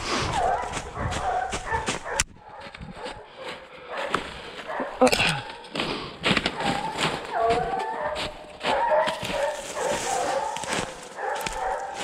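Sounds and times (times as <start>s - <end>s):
hounds baying: 0.2s - 12.0s.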